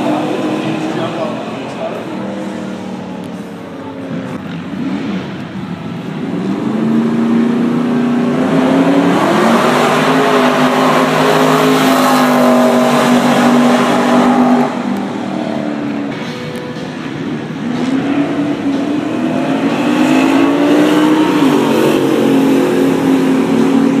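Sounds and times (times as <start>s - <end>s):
race car engine revving: 0.0s - 24.0s.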